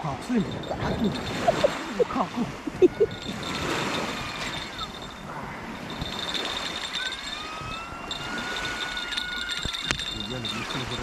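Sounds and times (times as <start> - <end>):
steady high-pitched tone: 0.4 - 2.2.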